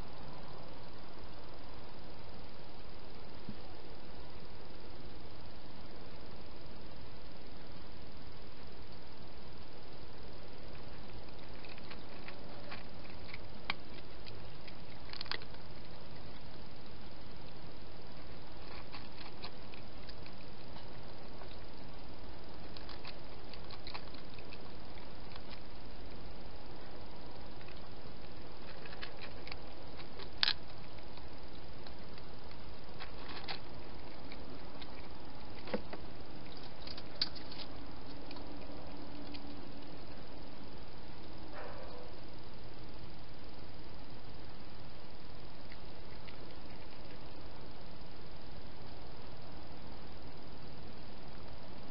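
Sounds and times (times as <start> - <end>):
steady hiss: 0.0 - 51.9
cat eating wet clicks: 10.6 - 40.5, 45.4 - 47.4.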